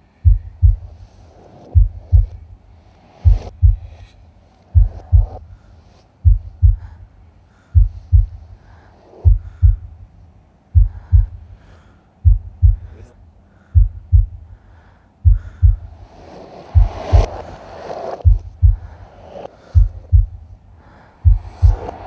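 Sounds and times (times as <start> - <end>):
heartbeat thumps: 0.2 - 1.0, 1.8 - 2.6, 3.2 - 4.0, 4.8 - 5.6, 6.2 - 7.0, 7.8 - 8.6, 9.2 - 10.1, 10.7 - 11.6, 12.2 - 13.0, 13.8 - 14.6, 15.2 - 16.0, 16.8 - 17.5, 18.2 - 19.1, 19.8 - 20.6, 21.2 - 22.0
rushing sound: 16.0 - 19.7.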